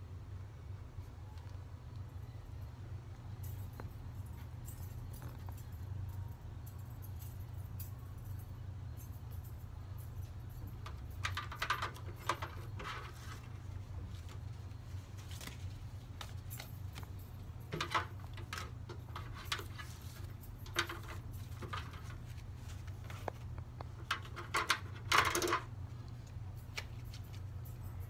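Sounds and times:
banknotes rustling: 0:11.0 - 0:28.0.

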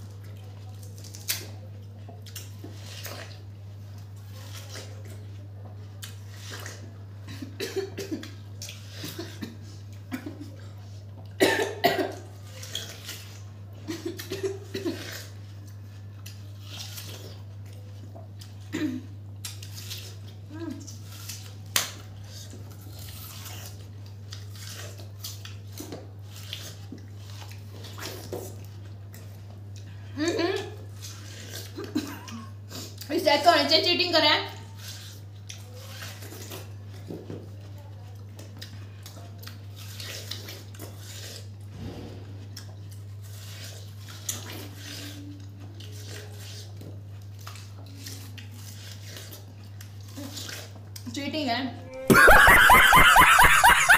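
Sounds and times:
people eating watermelon slurping: 0:00.0 - 0:33.2, 0:34.6 - 0:51.0, 0:52.1 - 0:53.9.

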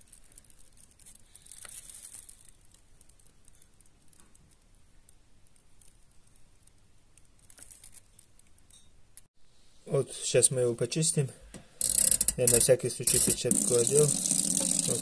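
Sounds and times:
foam bubbles crackling and popping: 0:13.2 - 0:15.0.

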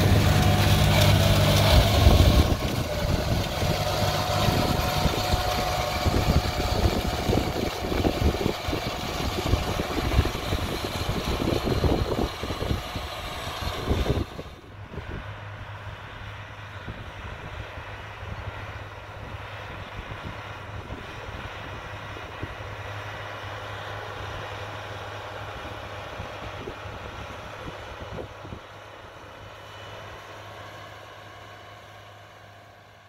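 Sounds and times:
wind buffeting microphone: 0:00.0 - 0:15.3
tractor diesel engine running: 0:00.0 - 0:33.0.

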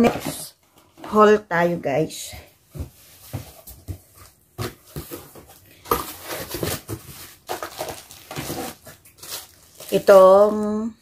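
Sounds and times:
packaging rustling: 0:03.2 - 0:10.8
plastic wrapping squeaks: 0:06.2 - 0:10.8.

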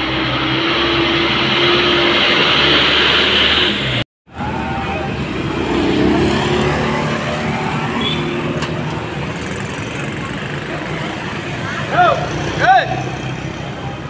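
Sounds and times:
vehicle engines running: 0:00.0 - 0:14.0
motorbike passing close by: 0:04.7 - 0:14.0.

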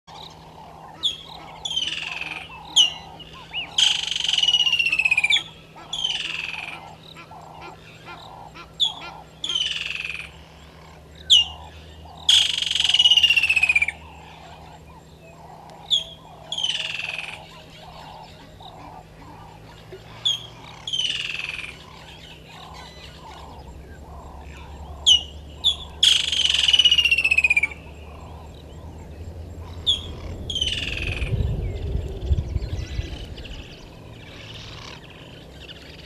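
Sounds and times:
lapwings calling: 0:00.1 - 0:31.4
low pulsing: 0:10.2 - 0:36.0.

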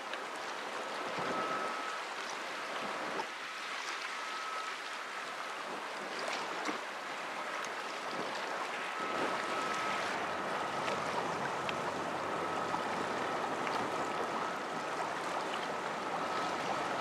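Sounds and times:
choppy river water: 0:00.0 - 0:17.0
wind: 0:00.0 - 0:17.0
thin high tone: 0:08.8 - 0:17.0.

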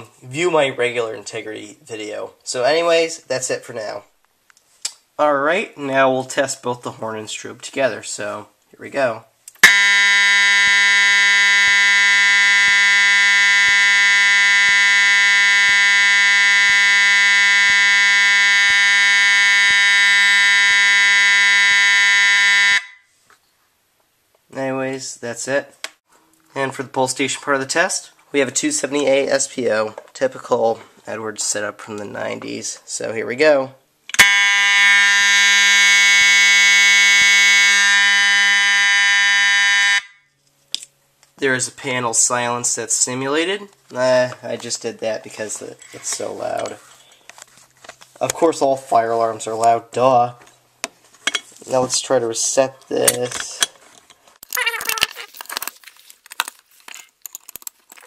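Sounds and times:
fire alarm horn continuous tone: 0:09.6 - 0:23.1, 0:34.2 - 0:40.3.

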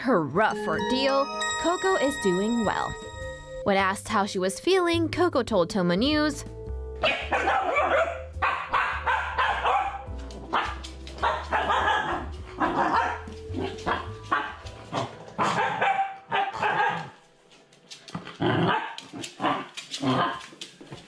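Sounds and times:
background music: 0:00.0 - 0:20.5
dog barking: 0:07.0 - 0:17.2, 0:18.6 - 0:20.4.

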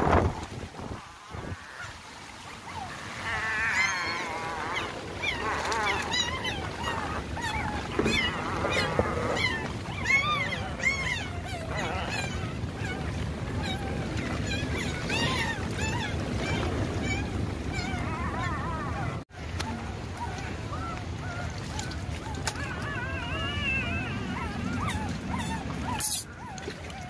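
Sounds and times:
water sloshing: 0:00.0 - 0:27.0
puppies squealing: 0:03.5 - 0:13.0, 0:13.6 - 0:19.1, 0:22.5 - 0:27.0.

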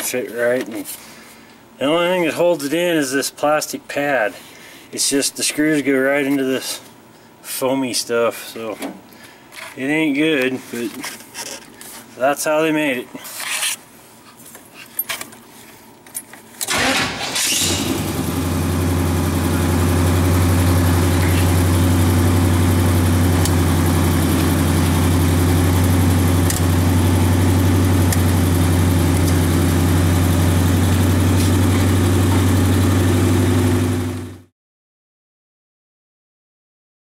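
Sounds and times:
engine cranking: 0:16.6 - 0:25.2
car engine idling: 0:16.7 - 0:34.4.

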